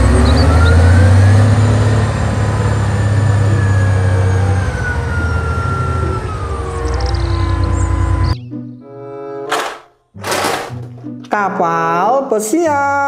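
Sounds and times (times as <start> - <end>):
diesel engine running hard: 0.0 - 8.4
hydraulic hoist whine: 0.1 - 8.4.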